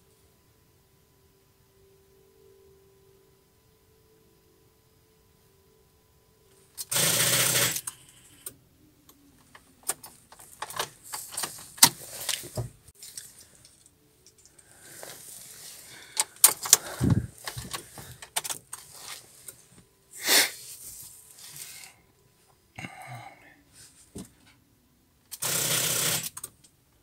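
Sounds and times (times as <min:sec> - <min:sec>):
car keys jangling: 0:17.4 - 0:18.9.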